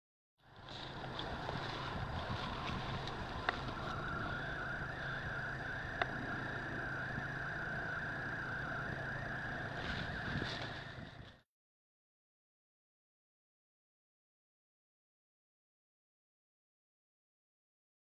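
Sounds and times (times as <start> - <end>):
low hum: 0.4 - 11.4
mid-pitched drone: 0.4 - 11.4.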